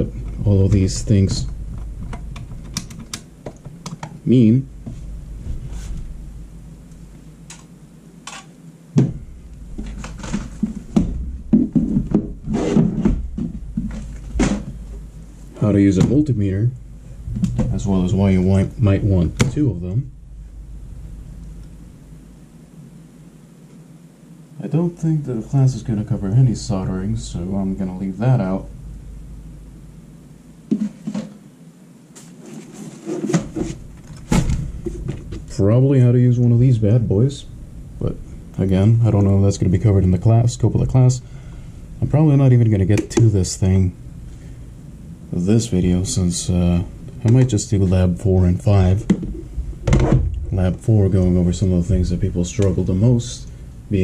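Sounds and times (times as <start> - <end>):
objects knocking on a desk: 9.0 - 9.2
hard objects knocking and clattering: 9.8 - 14.8.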